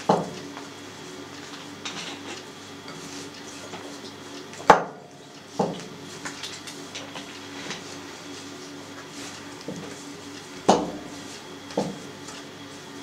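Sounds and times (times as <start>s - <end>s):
dough kneaded by hand rustling: 0.0s - 13.0s.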